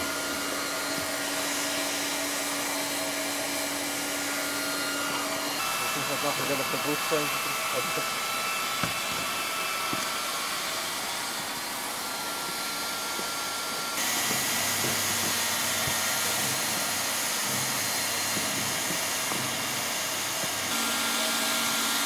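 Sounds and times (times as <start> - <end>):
hot-air welder blower hissing: 0.0 - 22.0.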